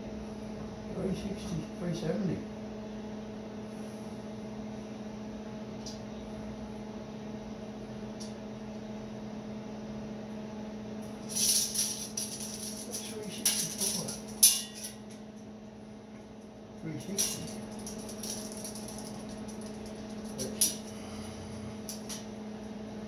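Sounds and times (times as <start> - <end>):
steady low hum: 0.0 - 23.0
metallic rattling and clinking: 11.2 - 15.2, 17.0 - 21.0.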